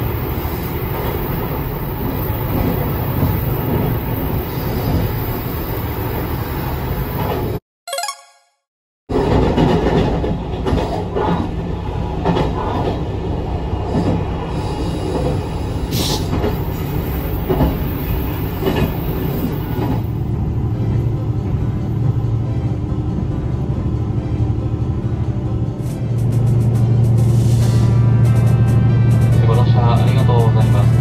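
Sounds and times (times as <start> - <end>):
diesel railcar rumbling: 9.1 - 31.0.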